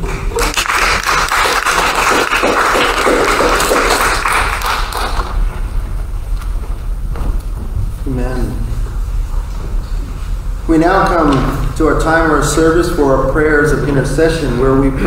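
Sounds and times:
crowd applauding: 0.0 - 5.6.

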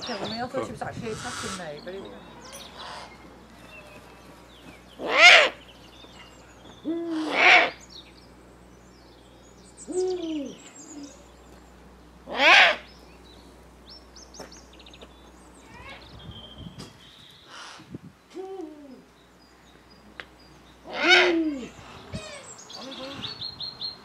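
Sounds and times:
small birds chirping: 0.0 - 24.0
high-pitched owl calls: 5.0 - 5.6, 6.8 - 7.9, 9.8 - 11.2, 12.3 - 12.9, 20.8 - 23.2
owl hooting: 5.0 - 7.9, 9.8 - 11.3, 12.2 - 12.9, 17.4 - 19.1, 20.8 - 23.3.

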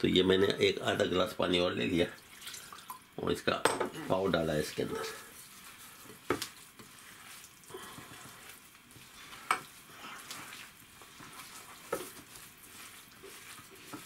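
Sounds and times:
dough squelching by hand: 4.0 - 14.0.

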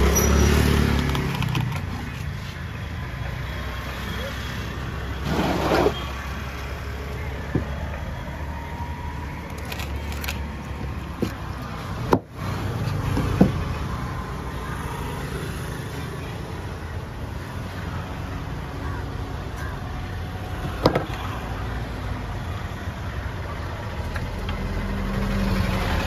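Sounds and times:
road traffic: 0.0 - 26.0.

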